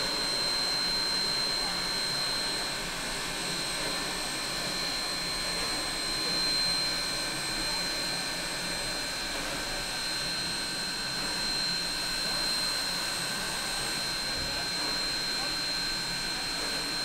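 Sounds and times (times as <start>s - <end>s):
steam locomotive hissing: 0.0s - 6.4s.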